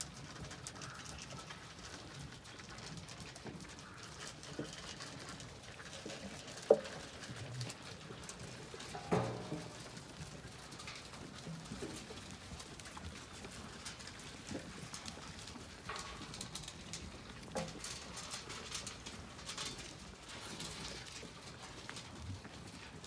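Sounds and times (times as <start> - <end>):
hooves clicking on muddy yard: 0.0 - 23.0
muzzles knocking metal trough: 8.9 - 10.2.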